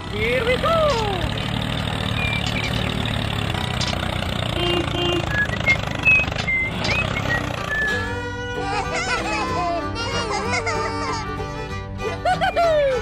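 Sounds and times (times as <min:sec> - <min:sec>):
tractor engine rumbling: 0:00.0 - 0:13.0.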